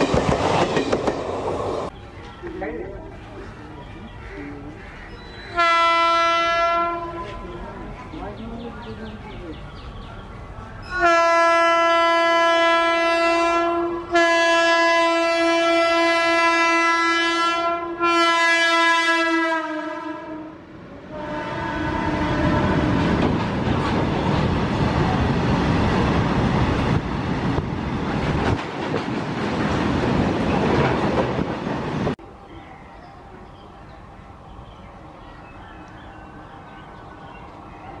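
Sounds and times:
locomotive air horn blasts: 5.5s - 7.4s, 10.8s - 23.2s.

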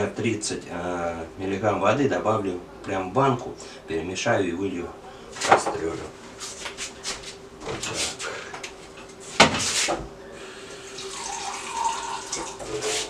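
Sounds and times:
tap water running and splashing: 10.7s - 13.0s.

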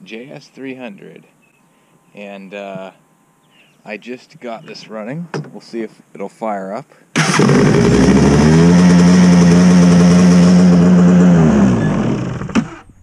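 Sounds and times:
jet ski engine idling: 7.2s - 12.7s.

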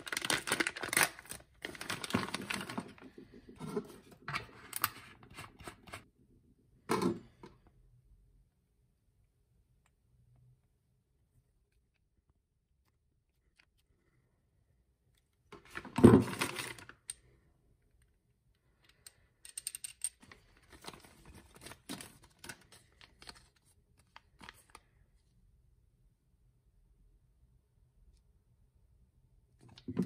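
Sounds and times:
plastic bags rustling: 0.0s - 3.4s
small metal fittings clicking: 18.8s - 20.2s.

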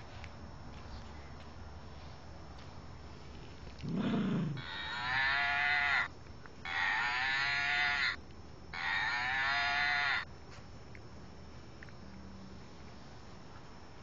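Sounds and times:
toy mooing: 4.6s - 6.1s, 6.7s - 10.2s.

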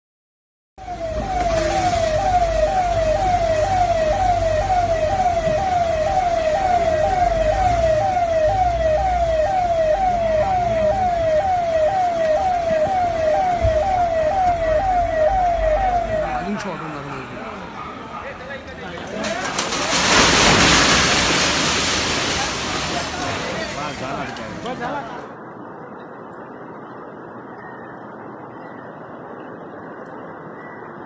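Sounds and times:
siren warbling: 0.8s - 18.2s
low rumbling noise: 0.8s - 18.9s.

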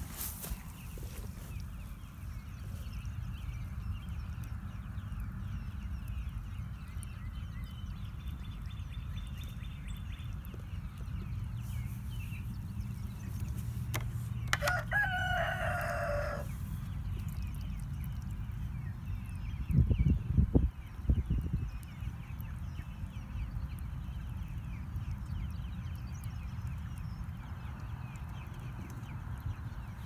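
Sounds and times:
steady low rumble: 0.0s - 30.0s
rooster crowing: 14.6s - 16.5s.

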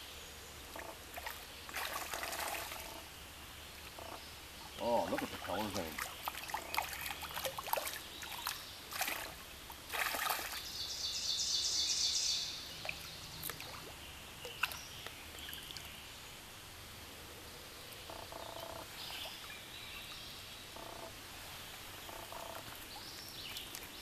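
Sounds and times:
stream trickling: 0.0s - 24.0s
fish splashing at water surface: 0.8s - 3.0s, 4.9s - 10.6s.

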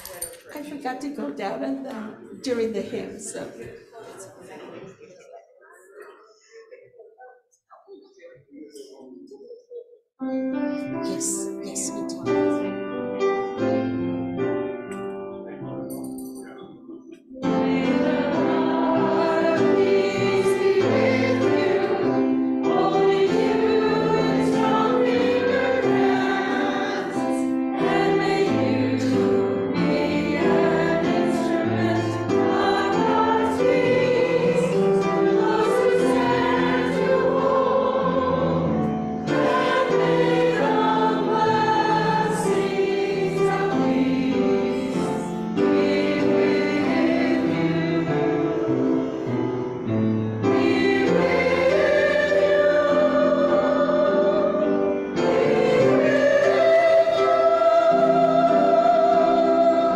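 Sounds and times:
keyboard notes: 9.7s - 59.9s
choir singing hymn: 17.4s - 59.9s.

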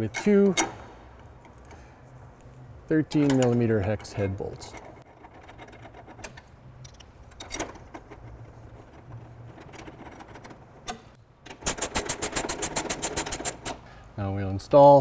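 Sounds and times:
ratchet wrench clicking: 11.6s - 13.8s.

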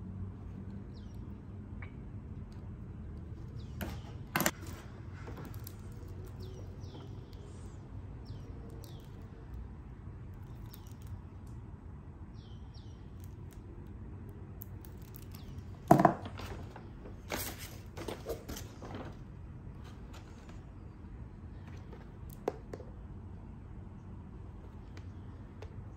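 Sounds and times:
paper bag rustling: 16.2s - 20.8s.

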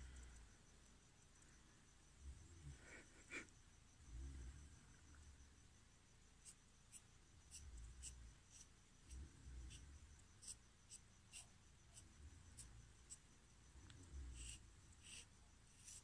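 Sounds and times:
marker scratching on skin: 6.4s - 9.8s, 10.4s - 13.2s, 14.3s - 16.0s.

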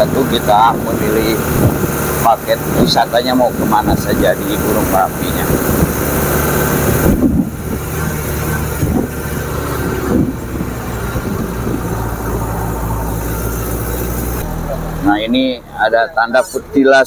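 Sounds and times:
jeep engine running: 0.0s - 17.0s
road noise: 0.0s - 17.0s
wind: 0.0s - 17.0s.

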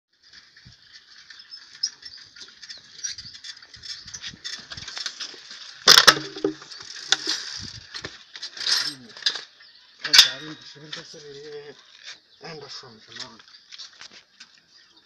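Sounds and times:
bicycle rattling and clicking: 0.2s - 12.2s
bicycle clattering into wall: 4.9s - 9.5s.

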